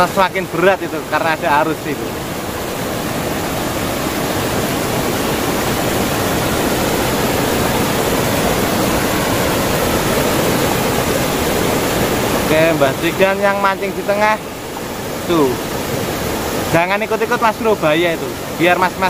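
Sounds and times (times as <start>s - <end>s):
river water rushing over rapids: 0.0s - 19.0s.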